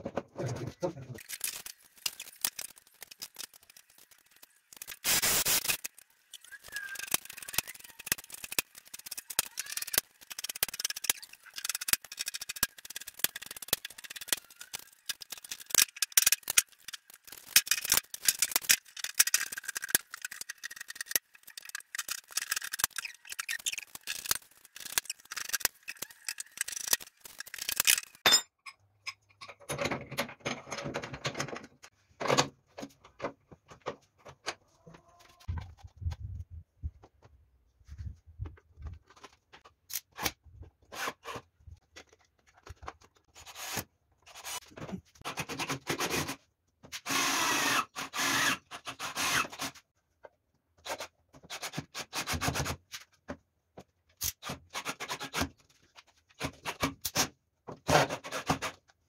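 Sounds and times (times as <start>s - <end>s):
dense clicking and rattling: 0.0s - 28.2s.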